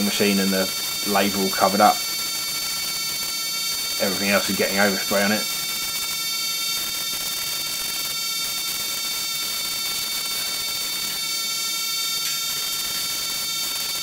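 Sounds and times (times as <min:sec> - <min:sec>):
paint spray gun hissing: 0:00.0 - 0:07.8.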